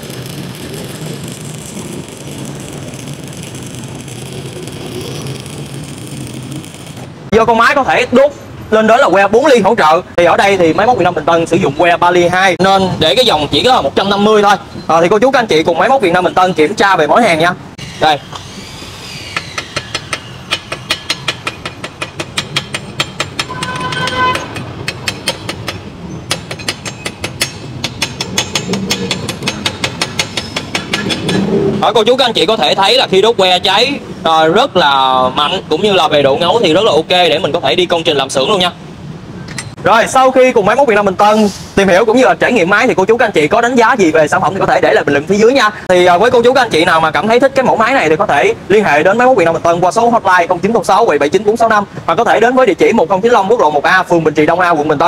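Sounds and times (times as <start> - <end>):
welding arc crackling and hissing: 0.0 - 7.3
short metallic ringing tone: 23.5 - 24.6.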